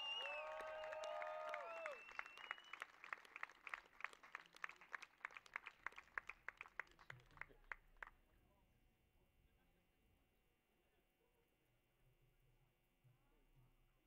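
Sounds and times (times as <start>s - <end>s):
sparse applause: 0.0s - 7.6s.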